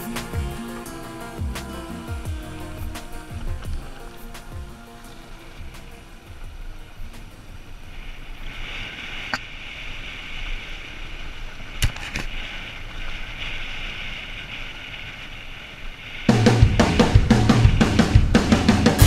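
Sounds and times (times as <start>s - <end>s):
music with drum kit: 0.0s - 6.6s, 16.3s - 19.0s
wind rushing: 16.3s - 19.0s.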